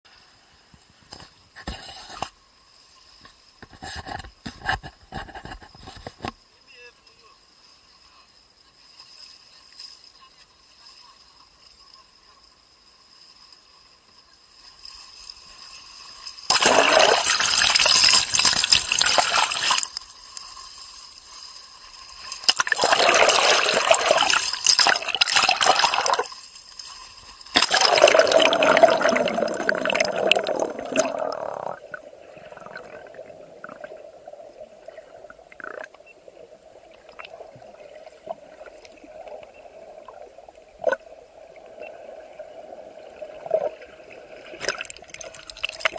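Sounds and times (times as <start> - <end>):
sea water splashing: 15.6 - 20.0, 20.6 - 45.9.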